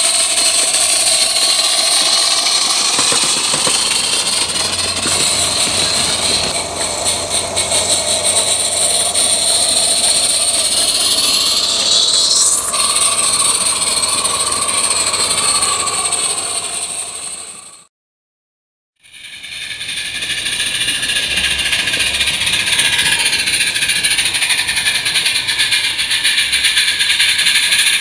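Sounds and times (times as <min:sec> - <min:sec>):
faint regular locomotive beat: 0:00.0 - 0:12.0, 0:12.6 - 0:17.7, 0:19.2 - 0:28.0
rising whine: 0:00.0 - 0:17.8.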